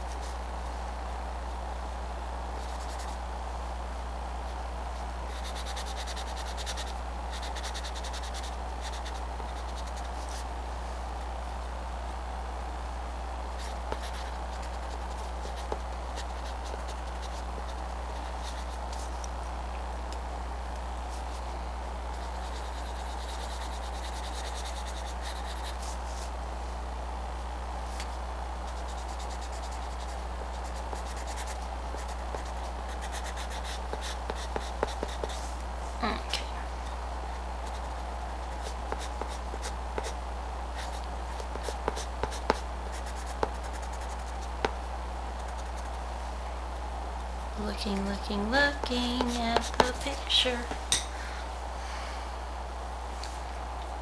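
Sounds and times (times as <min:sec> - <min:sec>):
low electrical hum: 0:00.0 - 0:54.0
pencil scratching on paper: 0:05.3 - 0:10.5, 0:13.6 - 0:19.1, 0:22.2 - 0:26.3, 0:28.7 - 0:35.5, 0:37.6 - 0:40.2, 0:40.8 - 0:44.8.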